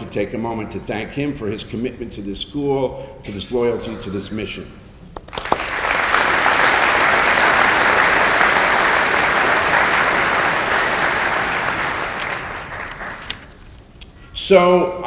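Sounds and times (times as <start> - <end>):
audience applauding: 5.2 - 13.6.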